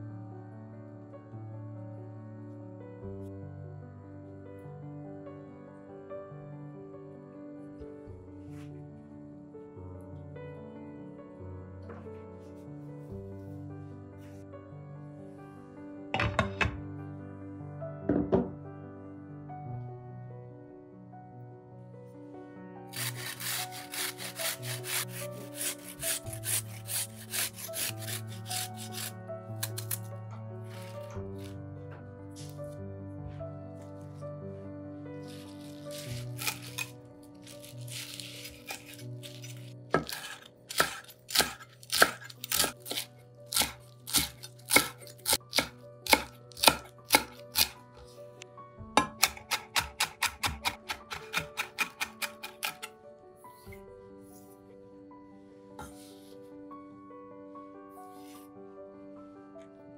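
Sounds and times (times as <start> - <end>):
soft background music: 0.0 - 59.9
garlic rasping on a metal grater: 22.9 - 30.0, 35.3 - 47.8, 49.2 - 52.9
knife chopping on wooden board: 23.0 - 30.0, 35.9 - 36.9, 37.7 - 47.8, 49.0 - 52.9.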